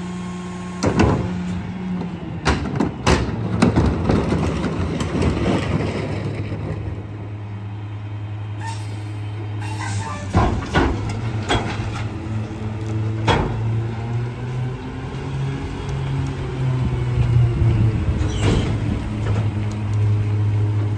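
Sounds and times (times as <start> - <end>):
garbage truck engine: 0.0 - 20.9
air brakes hissing: 8.6 - 10.4.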